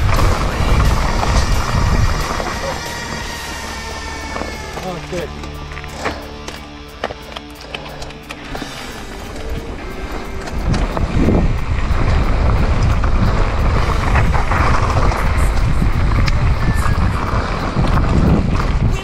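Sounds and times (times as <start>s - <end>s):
wind buffeting microphone: 0.0s - 4.1s, 8.6s - 19.0s
gravel and bike rattles: 0.0s - 19.0s.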